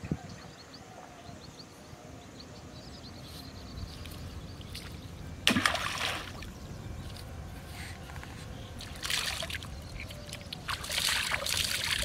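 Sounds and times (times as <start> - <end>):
low wind rumble: 0.0 - 12.0
fishing line splashing in water: 4.7 - 6.5, 8.8 - 12.0.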